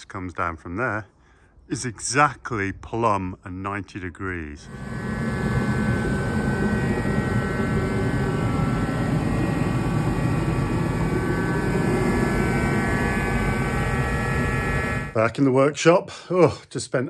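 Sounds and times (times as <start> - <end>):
faint high hum: 4.4 - 15.7
space heater fan and burner rush: 4.7 - 15.2.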